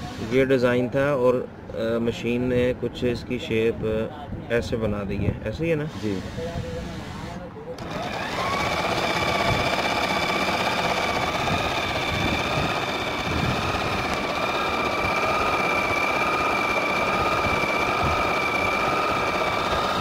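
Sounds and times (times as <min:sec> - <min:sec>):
electric sewing machine running: 0:07.8 - 0:20.0.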